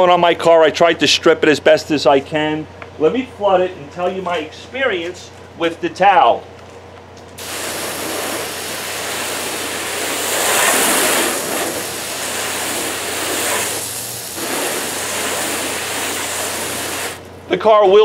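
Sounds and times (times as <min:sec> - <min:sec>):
hose spraying water on car: 0:07.4 - 0:17.3.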